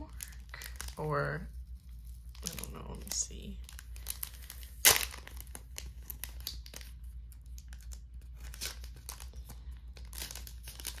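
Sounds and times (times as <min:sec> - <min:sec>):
cellophane sleeve crinkling: 0:00.0 - 0:11.0.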